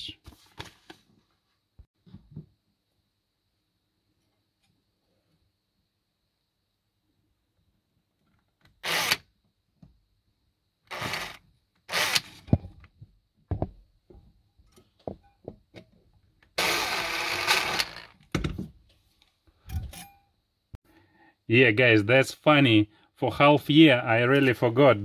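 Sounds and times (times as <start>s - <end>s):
cordless drill running: 8.8s - 9.2s, 10.9s - 12.5s, 16.6s - 18.2s.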